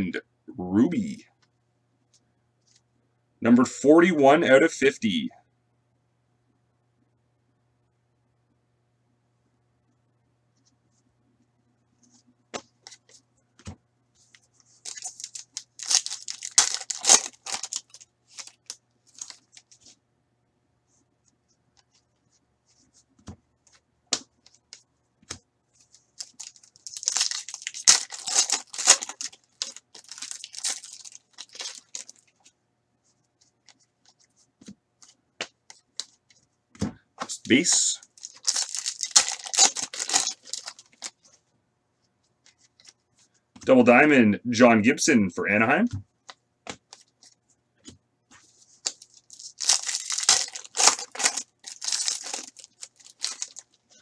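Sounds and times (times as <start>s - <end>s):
card wrappers tearing and crinkling: 14.8s - 19.8s, 25.9s - 32.3s, 38.2s - 41.2s, 48.8s - 53.8s.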